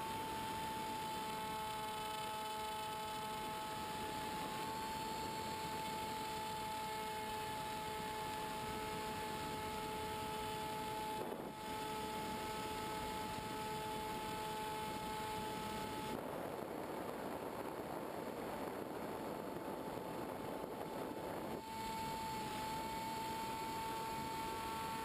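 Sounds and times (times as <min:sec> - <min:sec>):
model plane motor whine: 0:00.0 - 0:25.0
wind rush: 0:15.4 - 0:24.8.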